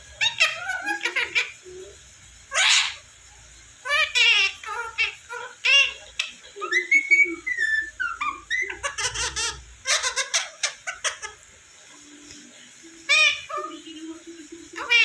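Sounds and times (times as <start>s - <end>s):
parrot harsh chattering: 0.0s - 3.2s, 3.8s - 11.7s, 13.0s - 13.8s, 14.7s - 15.0s
parrot whistling: 0.1s - 1.9s, 3.8s - 11.4s, 12.8s - 13.8s, 14.7s - 15.0s.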